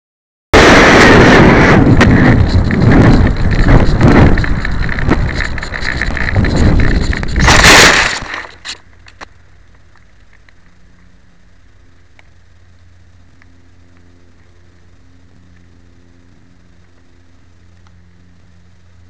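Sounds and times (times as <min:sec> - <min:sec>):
wind buffeting microphone: 0:00.6 - 0:08.3
small ticks: 0:02.0 - 0:19.0.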